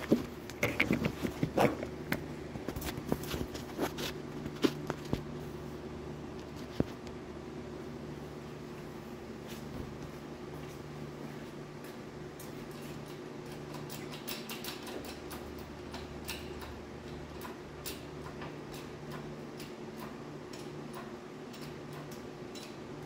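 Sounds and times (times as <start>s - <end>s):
steady low hum: 0.0s - 23.0s
metal ticks and clicks: 12.4s - 22.9s.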